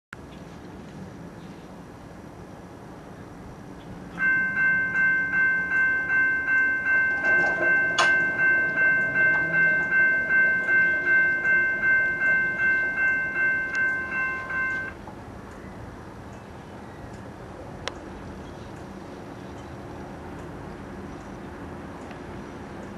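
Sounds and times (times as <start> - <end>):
railroad crossing bell ringing: 4.1 - 15.0.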